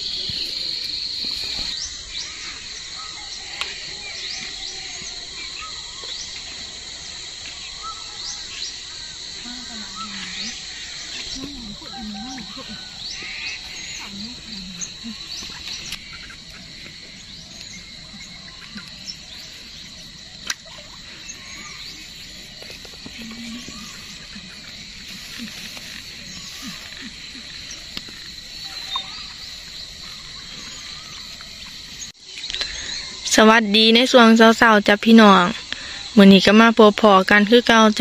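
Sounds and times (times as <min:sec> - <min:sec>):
insect drone: 0:00.0 - 0:38.0
bird chirps: 0:09.7 - 0:33.2.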